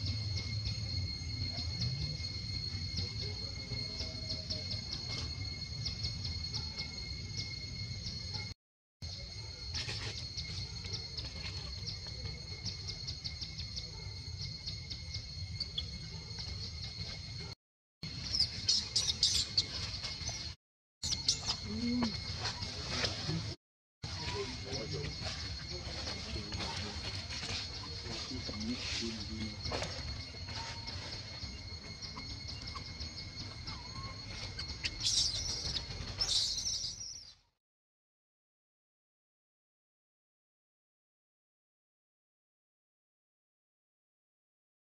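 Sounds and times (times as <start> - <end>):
bird chirps: 0.0 - 8.5, 9.1 - 37.5
high insect drone: 0.0 - 37.4.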